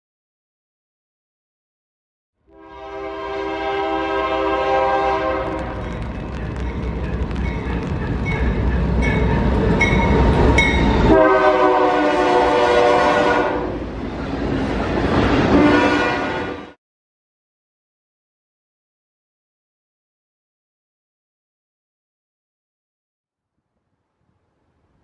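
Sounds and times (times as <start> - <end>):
train horn blasts: 2.4 - 6.1, 10.6 - 13.8, 15.5 - 16.8
deep rumble of moving train: 2.6 - 16.8
bell ringing: 5.8 - 11.1.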